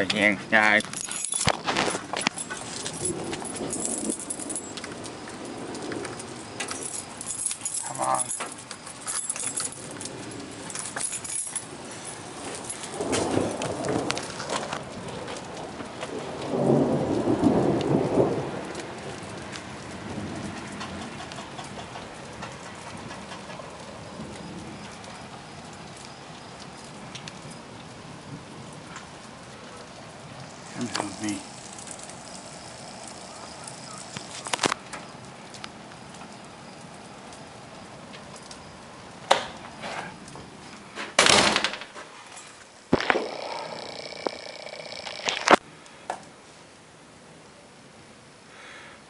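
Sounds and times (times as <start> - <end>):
thunder rumbling: 0.0 - 8.6, 9.6 - 25.8, 42.9 - 45.6
gusty storm wind: 0.0 - 25.6
light rain with drops ticking: 0.0 - 41.3, 42.0 - 49.0.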